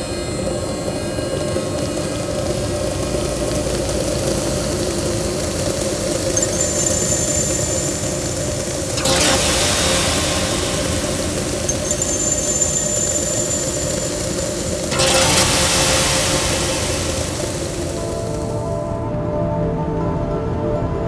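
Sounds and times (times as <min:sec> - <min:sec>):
droning hum: 0:00.0 - 0:20.8.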